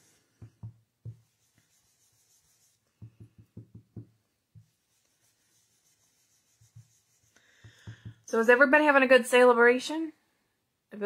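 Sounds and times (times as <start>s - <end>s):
brush dabbing on cardstock: 0.4s - 8.3s.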